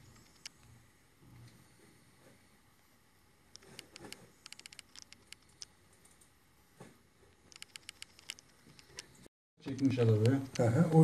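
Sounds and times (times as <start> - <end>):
computer mouse clicking: 0.2 - 0.7, 3.5 - 6.3, 7.4 - 9.2.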